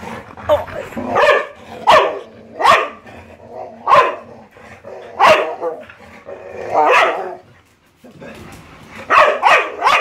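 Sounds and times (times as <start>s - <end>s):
dog barking: 1.1s - 3.0s, 3.8s - 4.3s, 5.2s - 5.8s, 6.7s - 7.4s, 9.1s - 10.0s.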